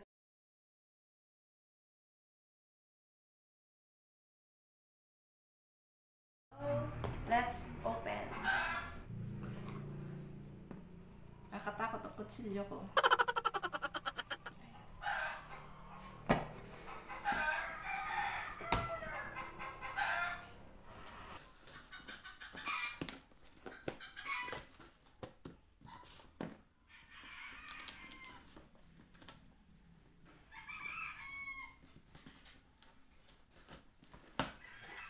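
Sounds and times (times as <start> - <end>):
rooster crowing: 8.4 - 9.2, 13.0 - 16.2, 16.8 - 21.0, 26.9 - 28.6, 30.5 - 31.8, 34.6 - 35.0
chickens clucking: 12.9 - 23.0.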